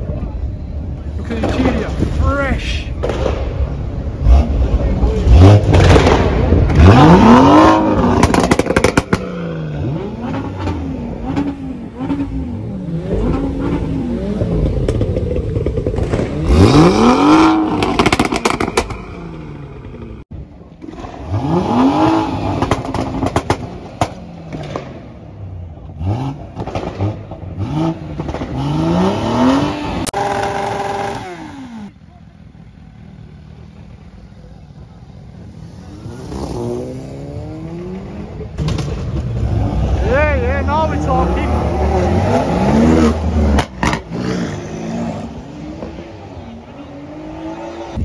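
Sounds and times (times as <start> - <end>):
exhaust pops and crackles: 2.9 - 4.0, 5.5 - 7.0, 7.8 - 9.4, 14.5 - 16.7, 17.6 - 19.2, 22.6 - 25.2, 26.4 - 27.5, 28.1 - 28.6, 38.6 - 39.5, 43.5 - 44.1.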